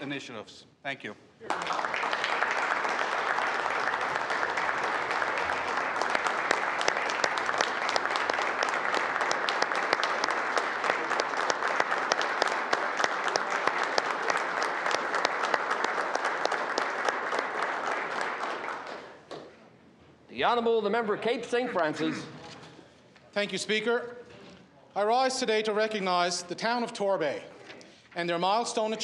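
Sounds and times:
people clapping: 1.4s - 19.6s.

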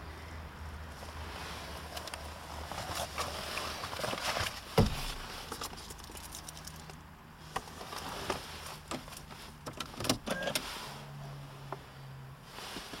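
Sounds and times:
loud thump: 4.8s - 5.2s.

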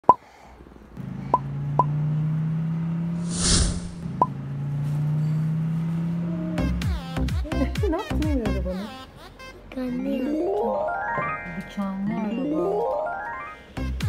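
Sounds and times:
hissing whoosh: 3.2s - 4.0s.

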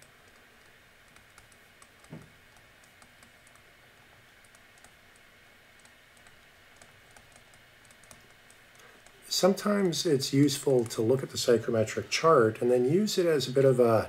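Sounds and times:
stylus tapping on tablet screen: 0.0s - 3.6s.

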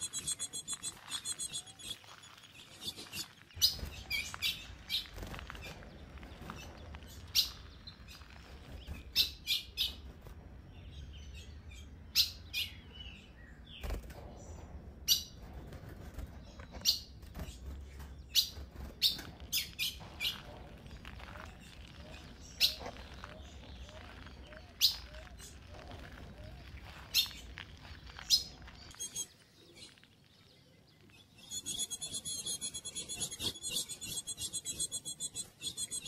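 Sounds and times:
bird chip calls: 0.0s - 5.8s, 18.4s - 30.0s, 31.2s - 36.0s.

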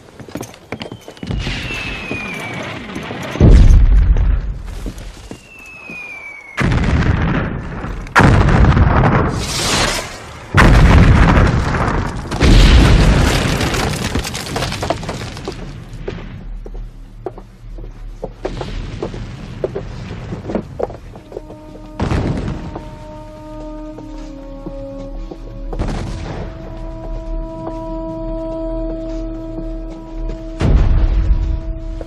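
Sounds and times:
descending shell whistle: 0.8s - 2.7s, 5.3s - 6.6s
heavy explosions with rumble: 1.3s - 4.7s, 6.6s - 16.5s, 18.5s - 21.1s, 21.9s - 23.0s, 25.8s - 26.8s, 30.6s - 32.0s.

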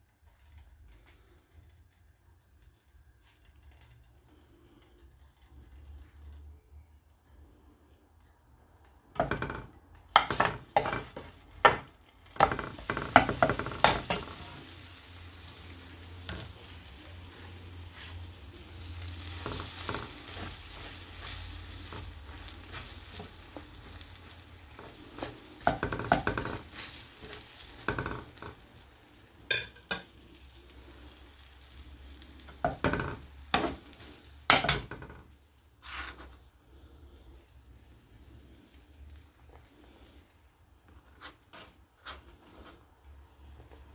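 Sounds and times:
bread sizzling in a frying pan: 0.0s - 6.5s, 9.1s - 43.9s
metal spoon scraping and tapping pan: 9.2s - 14.8s, 16.2s - 16.8s, 17.4s - 28.6s, 29.4s - 30.7s, 32.4s - 36.4s.

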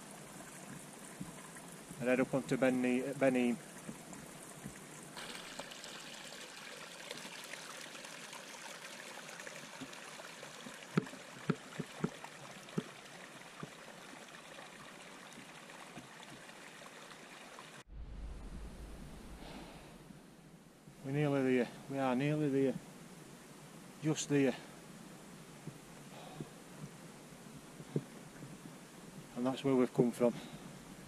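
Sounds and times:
stream trickling: 0.0s - 17.9s, 20.9s - 31.0s
water gurgles: 0.0s - 19.4s
low rumble: 17.9s - 21.1s.

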